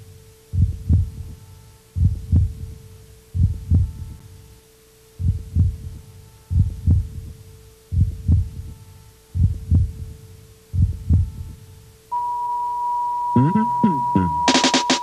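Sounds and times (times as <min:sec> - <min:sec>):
steady humming tone: 0:00.0 - 0:15.0
heartbeat thumps: 0:00.5 - 0:01.4, 0:02.0 - 0:02.8, 0:03.4 - 0:04.2, 0:05.2 - 0:07.3, 0:07.9 - 0:08.7, 0:09.3 - 0:10.1, 0:10.7 - 0:11.6.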